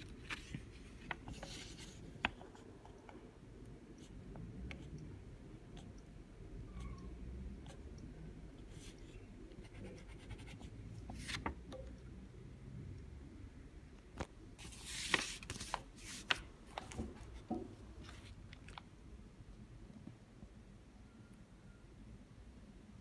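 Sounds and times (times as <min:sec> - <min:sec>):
paper rustling: 0:00.0 - 0:02.4, 0:11.1 - 0:11.6, 0:14.6 - 0:17.4.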